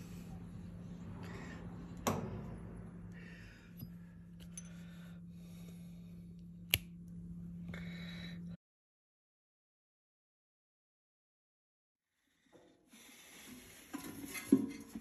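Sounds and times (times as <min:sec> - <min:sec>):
low hum: 0:00.0 - 0:08.6
metal washer clinking: 0:03.7 - 0:04.8.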